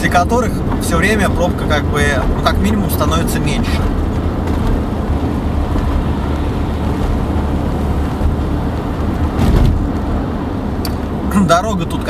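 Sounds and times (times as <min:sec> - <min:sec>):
car road noise: 0:00.0 - 0:12.0
thump: 0:09.4 - 0:09.9.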